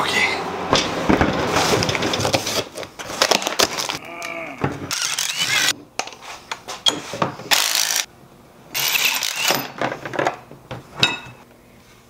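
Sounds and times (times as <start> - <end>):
hand tools clicking and scraping: 4.8 - 8.1, 8.8 - 10.3.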